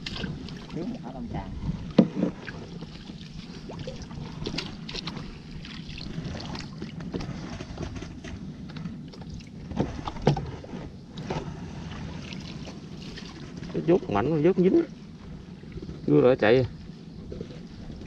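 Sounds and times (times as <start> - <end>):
paddle splashing water: 0.0 - 13.9
steady low rumble: 0.0 - 18.0
paddle knocking against hull: 1.9 - 3.2.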